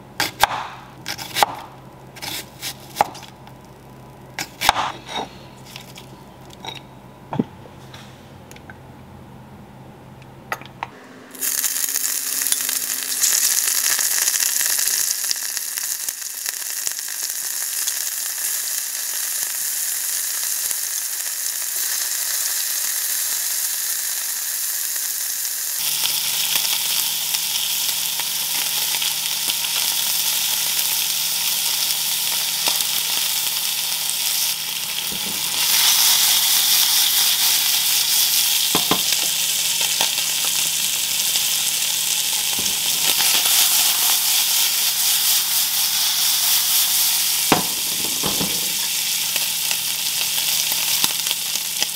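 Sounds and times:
beef sizzling in hot oil: 11.3s - 51.9s.

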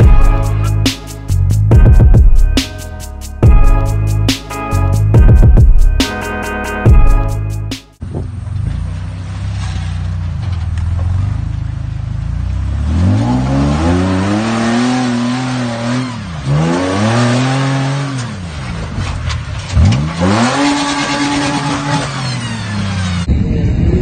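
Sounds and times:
buggy engine revving: 8.0s - 24.0s.

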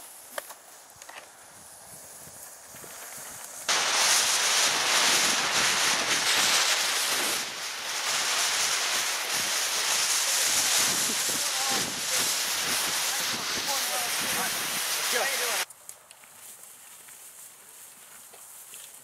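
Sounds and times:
smoke grenade hissing: 1.6s - 15.7s.

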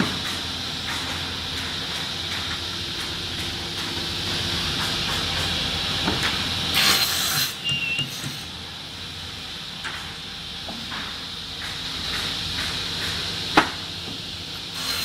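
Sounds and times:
saw cutting board: 6.7s - 8.5s, 14.8s - 15.0s.

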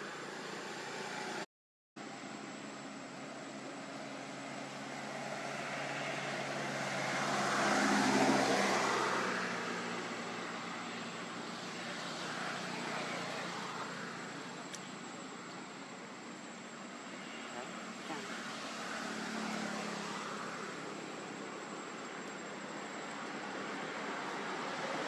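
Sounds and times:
vehicle engine passing by: 3.8s - 14.6s, 17.4s - 21.4s.

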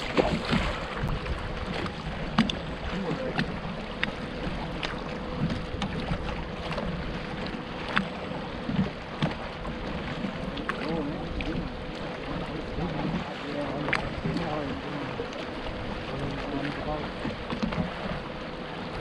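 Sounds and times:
wind on microphone: 0.0s - 3.8s
water lapping against boat hull: 0.0s - 19.0s.

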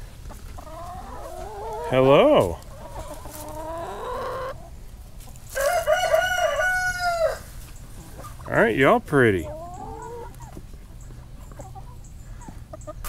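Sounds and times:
rooster crowing: 5.6s - 7.5s.

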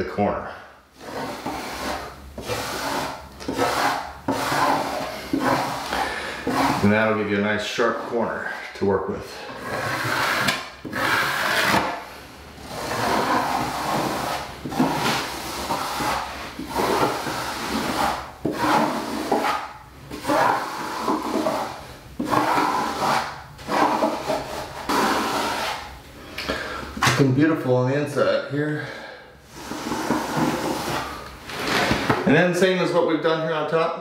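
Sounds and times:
metal knife scraping wet membrane: 1.0s - 8.1s.

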